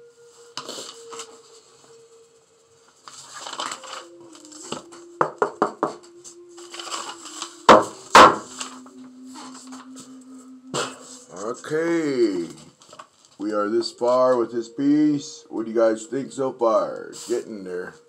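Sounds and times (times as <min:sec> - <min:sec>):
board knocking on wooden tabletop: 0:05.2 - 0:06.0.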